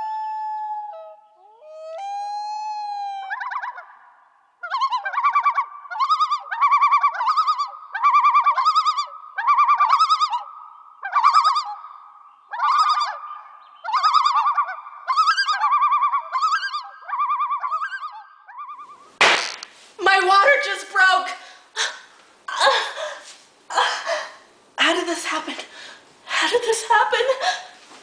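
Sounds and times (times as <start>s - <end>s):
loon tremolo calls: 0.0s - 19.1s.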